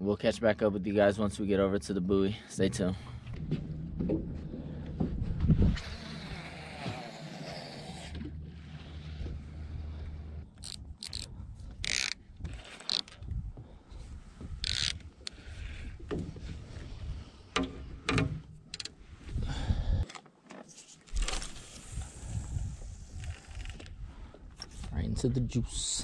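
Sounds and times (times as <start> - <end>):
low steady hum: 0.0 - 12.4
fishing reel clicks and knocks: 10.6 - 13.2, 14.6 - 15.4.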